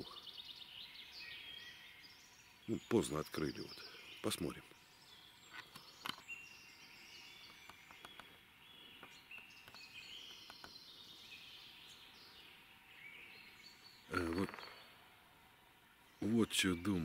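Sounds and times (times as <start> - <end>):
songbirds singing: 0.0 - 17.0
faint clicks: 7.4 - 8.4, 9.0 - 10.8.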